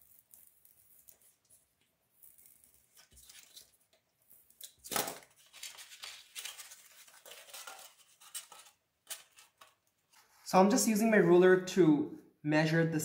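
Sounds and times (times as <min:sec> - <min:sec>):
foam being cut and handled: 0:00.0 - 0:05.3.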